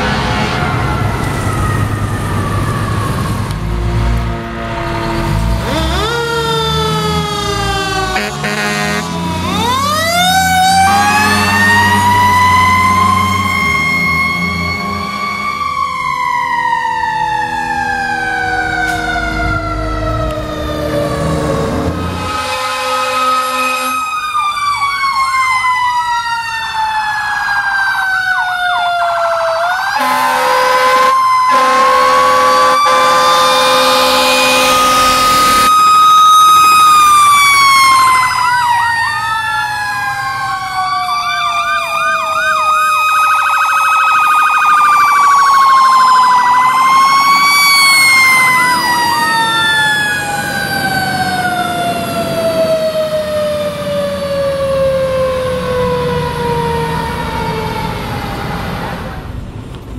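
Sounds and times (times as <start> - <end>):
fire truck sirens wailing: 0.0 - 59.9
siren yelps: 0.4 - 3.8, 5.2 - 59.2
air horn blast: 3.6 - 6.2, 8.0 - 9.6, 22.0 - 24.1, 30.0 - 35.7.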